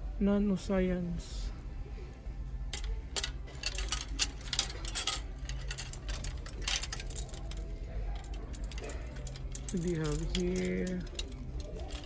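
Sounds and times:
low steady hum: 0.0 - 12.0
rackets clicking and clinking: 2.6 - 12.0.

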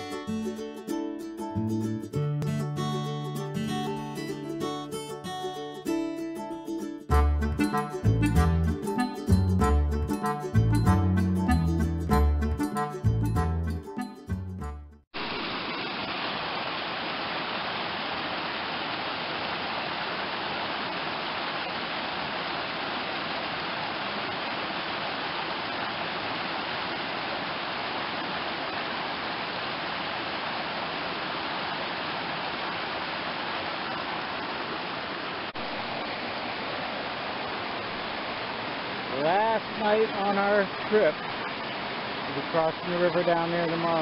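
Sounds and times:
stream rushing over boulders: 15.2 - 44.0.

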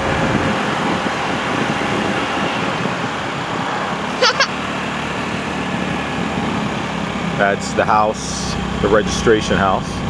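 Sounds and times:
car engine and road noise: 0.0 - 10.0
short high chirps: 4.2 - 4.5.

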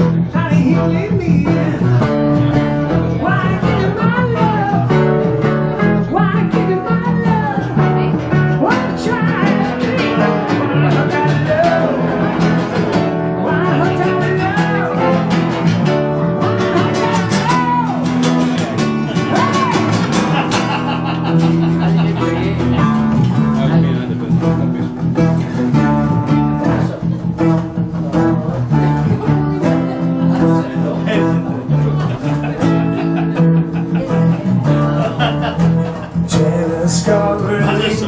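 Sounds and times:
acoustic guitars strumming: 0.0 - 38.0
lead guitar with bending notes: 0.0 - 38.0.

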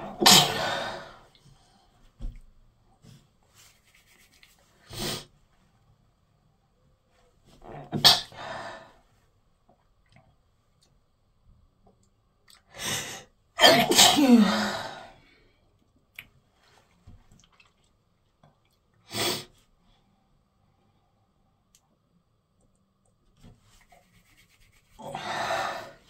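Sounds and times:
woman sneezing: 0.1 - 1.0, 13.6 - 15.0.

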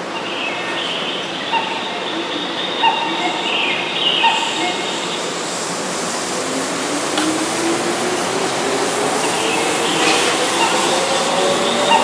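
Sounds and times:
train wheels rumbling: 4.9 - 12.0.

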